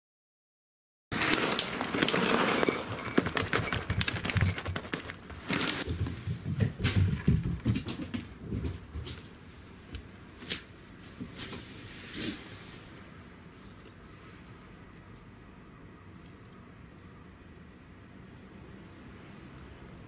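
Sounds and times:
kibble skittering on wooden floor: 1.6s - 9.3s
kibble clattering into bowl: 1.8s - 5.8s.

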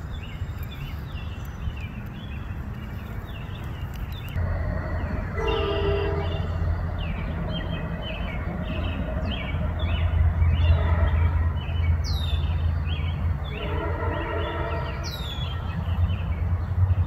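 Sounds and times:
small birds chirping: 0.0s - 17.0s
steady horn-like tone: 4.4s - 6.6s, 13.5s - 15.1s.

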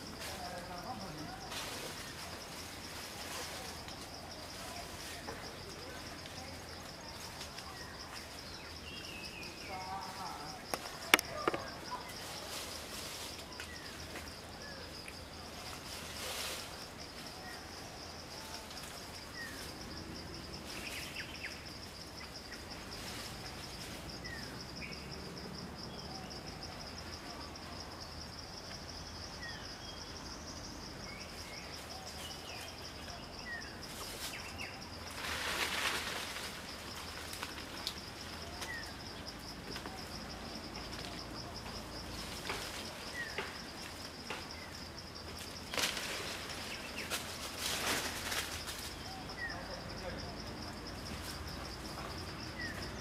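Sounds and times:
bursts of rustling: 33.9s - 38.1s, 45.3s - 49.0s.

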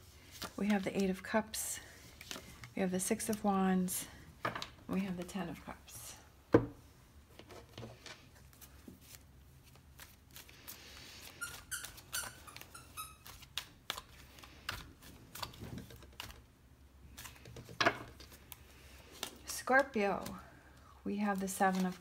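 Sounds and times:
cards being shuffled: 8.0s - 16.5s, 17.1s - 20.4s, 21.4s - 22.0s.

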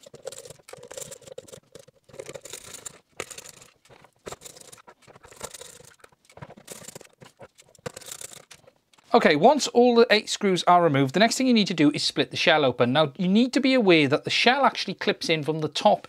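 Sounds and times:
scratchy rubbing on plastic: 0.0s - 8.8s.

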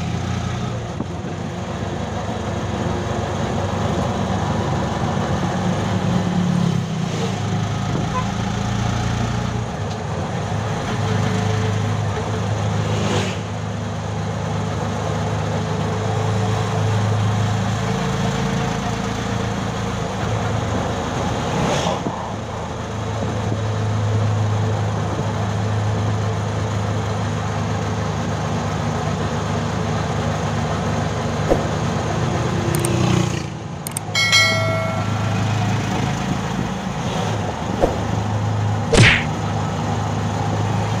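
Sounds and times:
vehicle engine humming: 0.0s - 21.5s, 22.2s - 41.0s
road and wind noise: 0.0s - 41.0s
short pitched tone: 34.0s - 36.1s.

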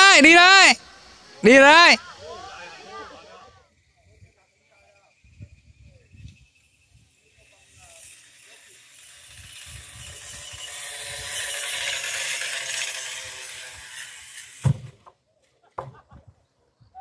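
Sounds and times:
pulley trolley whirring on cable: 4.7s - 14.7s.

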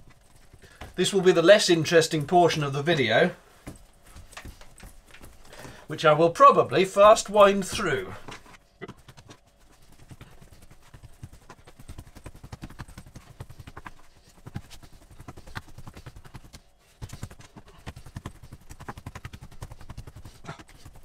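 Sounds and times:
dough thumps and slaps: 6.6s - 21.0s.

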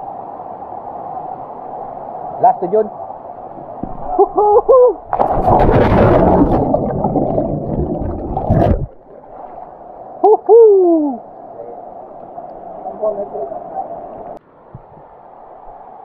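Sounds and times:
person whooping: 4.1s - 5.0s, 10.2s - 11.2s
splash and churning water: 5.1s - 9.7s.

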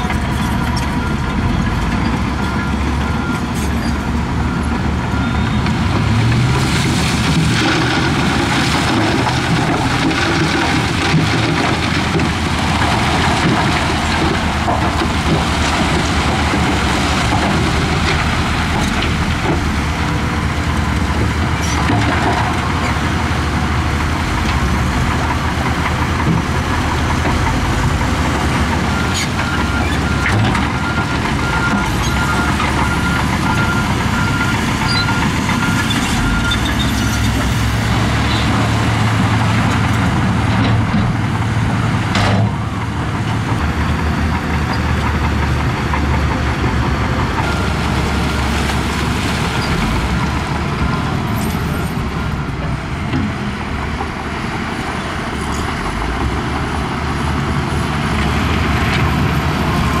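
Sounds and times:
diesel earthmoving machinery running: 0.0s - 60.0s
reversing alarm beeping: 0.2s - 6.0s, 28.8s - 36.9s.

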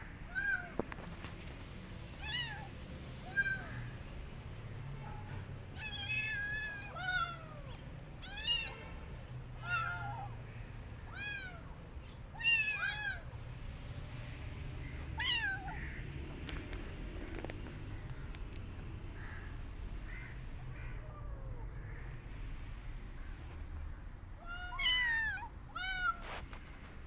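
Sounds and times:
kitten meowing: 12.3s - 13.3s, 15.2s - 16.0s, 24.4s - 26.4s.

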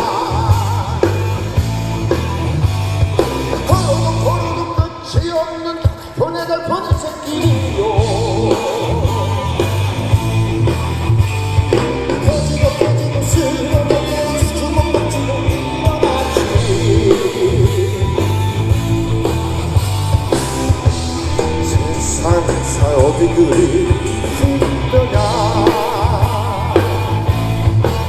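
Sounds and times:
man singing: 0.0s - 1.5s, 3.6s - 10.0s, 12.0s - 18.7s, 21.2s - 27.8s
rock band playing: 0.0s - 28.0s.

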